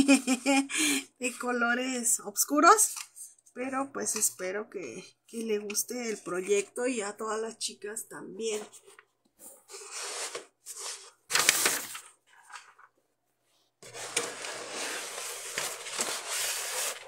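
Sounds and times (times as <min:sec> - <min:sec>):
rustling handling noises: 0:08.5 - 0:17.0.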